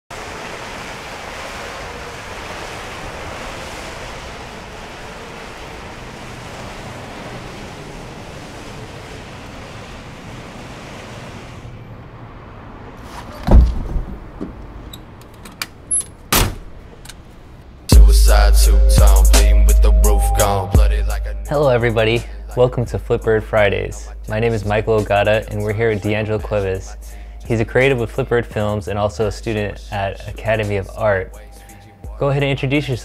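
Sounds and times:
steady outdoor rushing noise: 0.1s - 14.9s
heavy deep thump: 13.4s - 14.6s.

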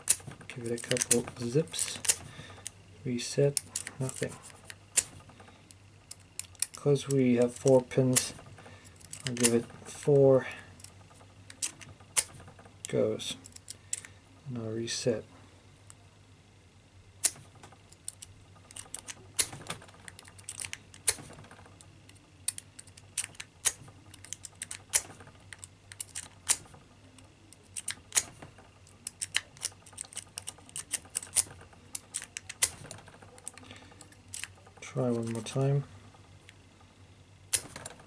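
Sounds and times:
lock pick clicking in padlock: 18.0s - 21.2s, 22.1s - 26.7s, 27.7s - 28.4s, 29.0s - 32.8s.

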